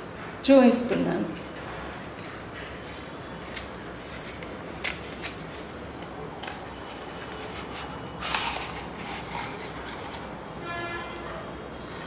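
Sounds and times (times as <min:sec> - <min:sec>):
rustling scrape: 0:06.4 - 0:10.8.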